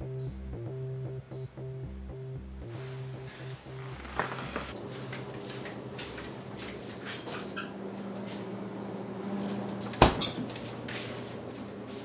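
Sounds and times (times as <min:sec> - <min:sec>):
footsteps on kitchen floor: 0:03.3 - 0:08.5, 0:09.2 - 0:12.0.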